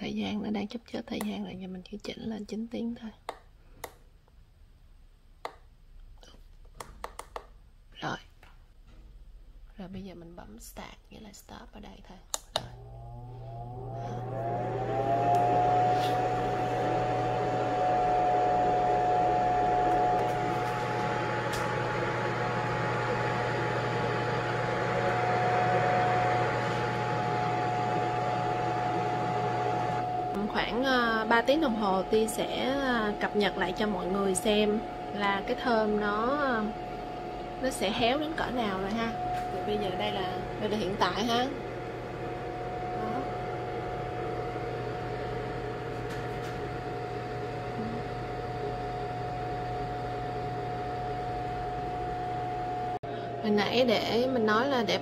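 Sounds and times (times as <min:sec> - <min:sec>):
dehydrator fan blowing: 0:12.4 - 0:55.0
low hum: 0:12.6 - 0:55.0
mid-pitched whine: 0:12.6 - 0:55.0.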